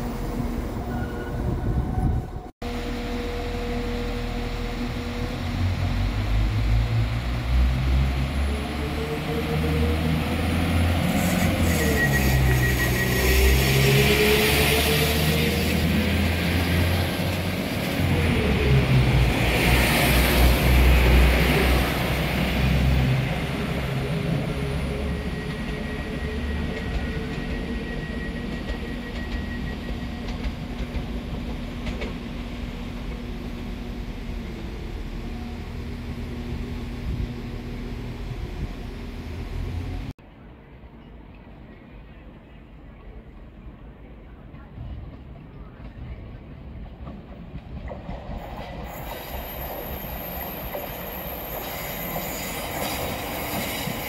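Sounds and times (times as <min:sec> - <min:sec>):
diesel train engines whining: 0:00.0 - 0:40.1.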